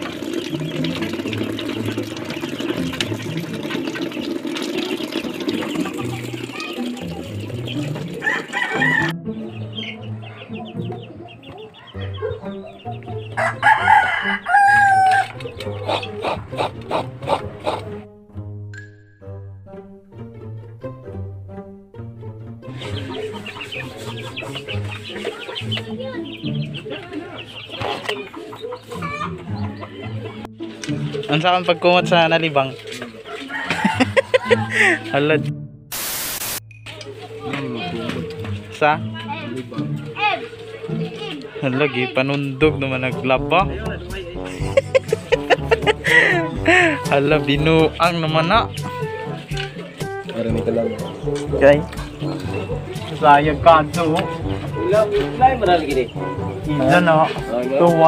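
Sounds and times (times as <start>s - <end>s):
tap water pouring into a basin: 0.0s - 9.1s
chickens clucking: 0.0s - 18.0s, 22.6s - 35.2s, 39.6s - 43.5s, 44.1s - 58.0s
background music: 0.0s - 58.0s.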